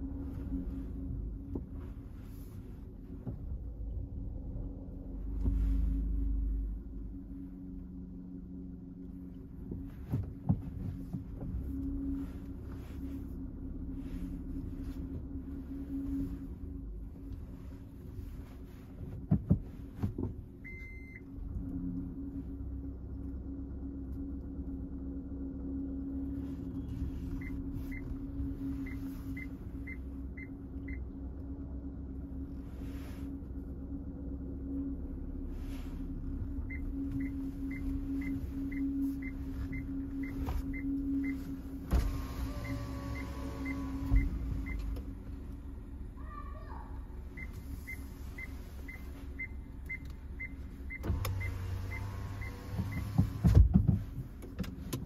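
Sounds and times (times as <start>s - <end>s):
car engine hum: 0.0s - 55.0s
parking sensor beeping: 20.6s - 21.3s, 26.8s - 31.0s, 36.5s - 45.1s, 47.3s - 53.5s.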